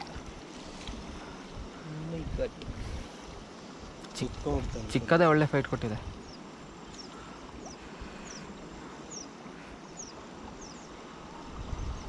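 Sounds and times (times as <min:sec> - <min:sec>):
flowing river water: 0:00.0 - 0:12.0
wind: 0:00.0 - 0:12.0
small bird chirping: 0:06.2 - 0:11.0.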